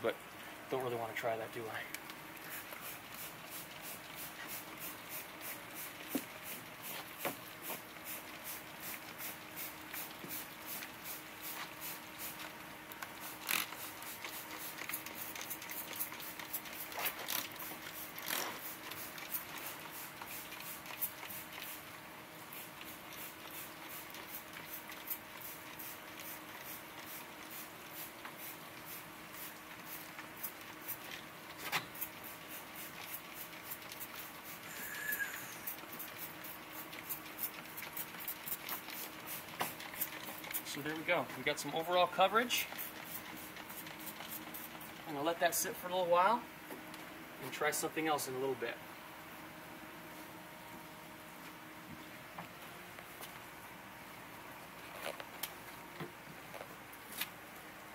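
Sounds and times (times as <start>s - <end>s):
hand sprayer spritzing: 2.4s - 12.5s, 13.1s - 21.9s, 22.5s - 40.8s, 42.5s - 45.1s.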